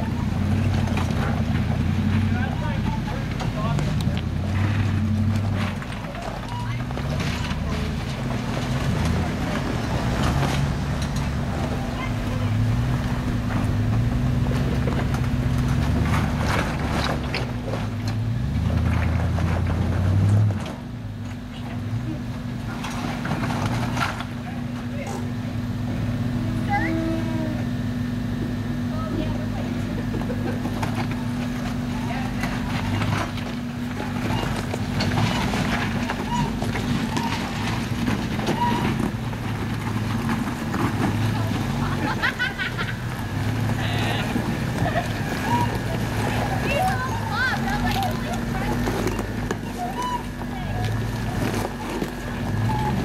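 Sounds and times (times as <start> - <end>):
truck engine under load: 0.0 - 53.0
rock cracking under tyres: 30.6 - 53.0
short high squeaks: 36.1 - 37.6, 38.4 - 39.0, 45.4 - 47.5, 49.0 - 50.5, 52.5 - 53.0.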